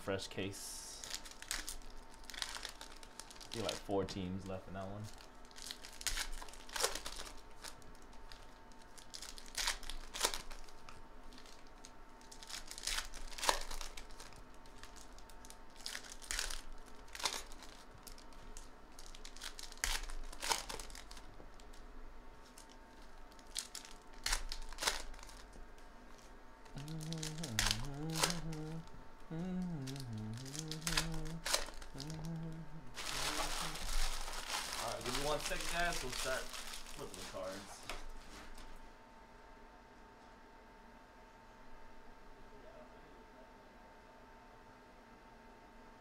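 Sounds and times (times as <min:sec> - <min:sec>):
foil wrappers tearing and crinkling: 0:00.9 - 0:04.2, 0:05.0 - 0:21.8, 0:22.4 - 0:28.8, 0:29.9 - 0:38.6.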